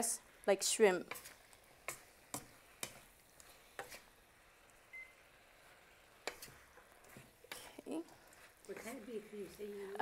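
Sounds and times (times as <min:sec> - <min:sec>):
short faint beep: 0:04.9 - 0:05.2.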